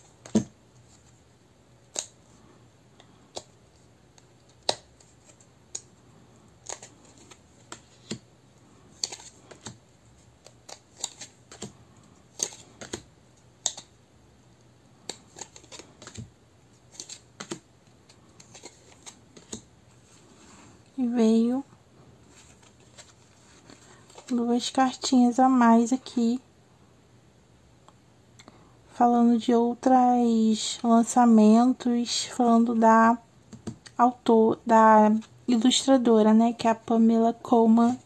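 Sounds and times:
cards tapping down: 0:09.0 - 0:09.8, 0:10.4 - 0:13.9, 0:15.0 - 0:16.3, 0:16.9 - 0:17.6.

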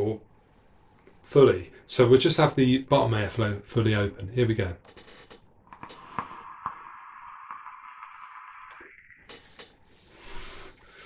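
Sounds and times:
airy hiss of air drawn: 0:05.8 - 0:08.9
soft breath out: 0:09.8 - 0:11.0.

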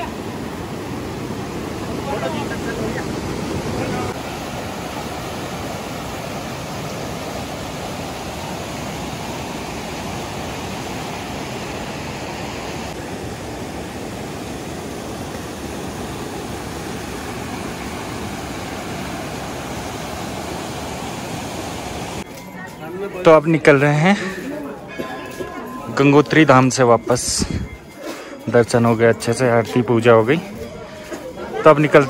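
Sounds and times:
river rushing: 0:00.0 - 0:22.3.

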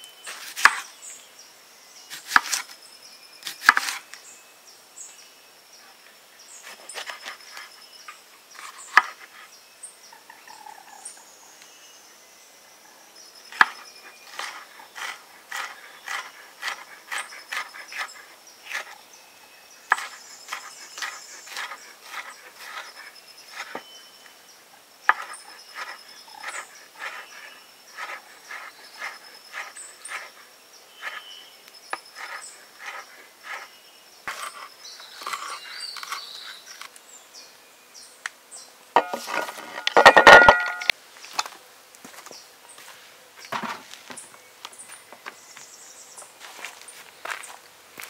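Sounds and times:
insects chirping: 0:05.0 - 0:48.0
knife chopping on wooden board: 0:19.9 - 0:22.9, 0:25.1 - 0:27.2, 0:32.2 - 0:33.6, 0:39.0 - 0:40.9.

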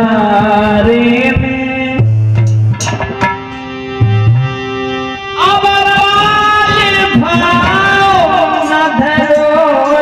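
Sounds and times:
man singing: 0:00.0 - 0:02.1, 0:05.4 - 0:10.0
harmonium holding steady notes: 0:00.0 - 0:10.0
tabla: 0:00.0 - 0:10.0.

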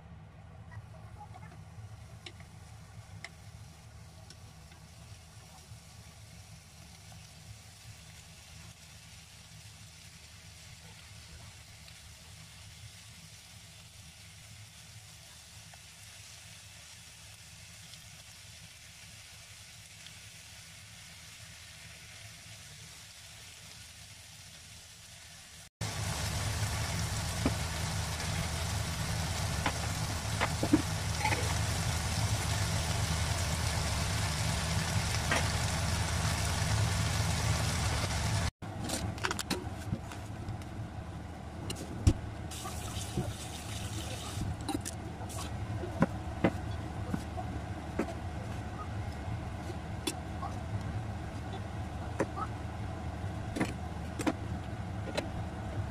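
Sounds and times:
chicken sizzling in a frying pan: 0:01.1 - 0:38.5, 0:42.4 - 0:44.6
steady low hum: 0:25.8 - 0:55.9.

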